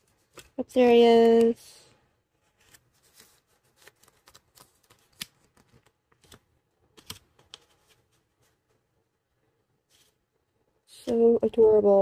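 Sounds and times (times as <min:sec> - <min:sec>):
paper and packaging rustles: 0:02.4 - 0:06.4.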